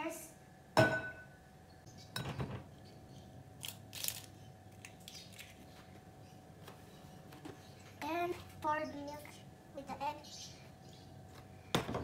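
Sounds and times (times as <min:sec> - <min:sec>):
eggshells crunching: 0:03.6 - 0:05.7.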